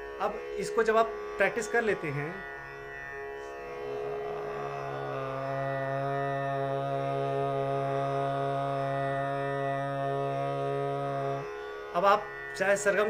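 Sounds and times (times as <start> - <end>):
tanpura drone: 0.0 - 13.0
man singing a long note: 3.9 - 11.5.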